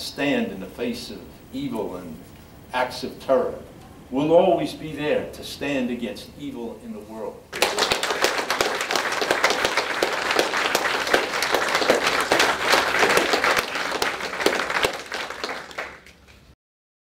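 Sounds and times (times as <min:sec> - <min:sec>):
audience applauding: 0:07.5 - 0:16.5.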